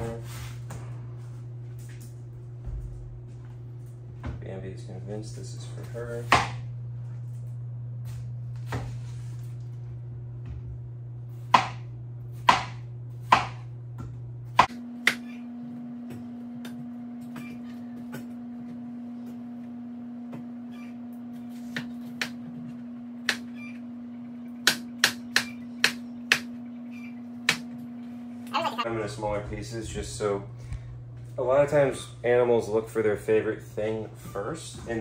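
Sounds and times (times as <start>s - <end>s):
knife chopping watermelon: 11.5s - 13.6s.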